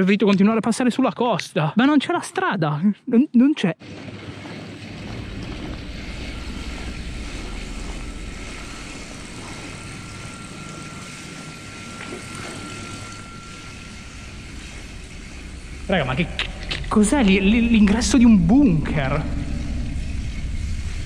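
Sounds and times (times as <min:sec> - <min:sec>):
thin steady whine: 0:03.9 - 0:21.0
low rumble in tunnel: 0:04.8 - 0:12.0, 0:13.1 - 0:21.0.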